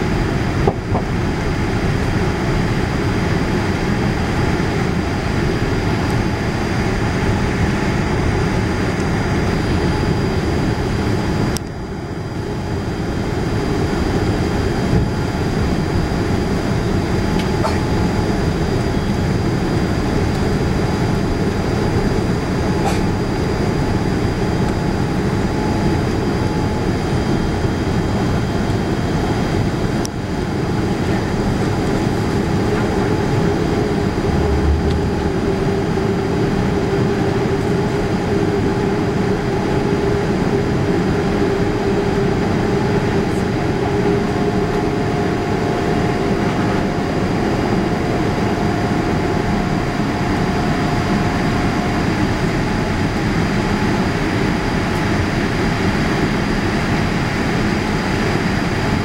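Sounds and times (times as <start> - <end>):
jet engine roar in cabin: 0.0 - 59.0
faint hum: 31.0 - 55.2.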